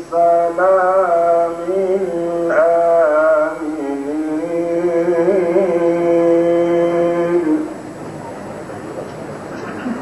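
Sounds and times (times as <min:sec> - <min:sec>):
man chanting melodically: 0:00.0 - 0:07.8.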